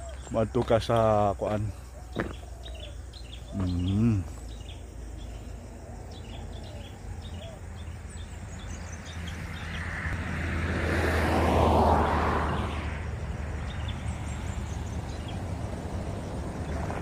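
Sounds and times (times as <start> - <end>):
faint bird chirps: 1.6 - 9.0
vehicle passing close by: 5.2 - 17.0.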